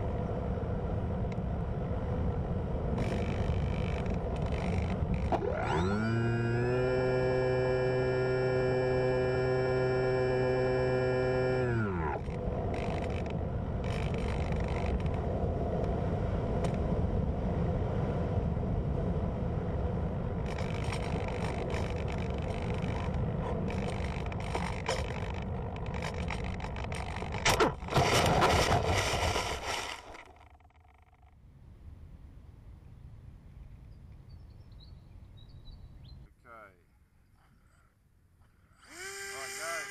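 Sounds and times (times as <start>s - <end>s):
wind rushing over camera: 0.0s - 30.6s
plane scraping through grass: 20.5s - 30.3s.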